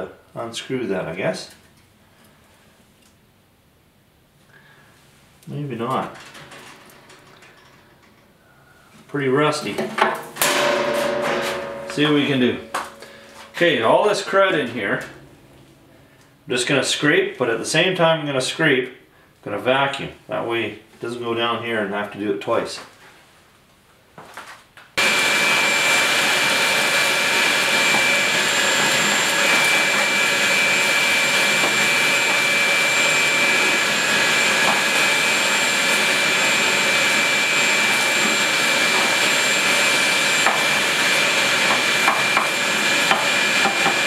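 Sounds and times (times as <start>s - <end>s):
shop vacuum running with whine: 8.4s - 17.2s, 25.0s - 44.0s.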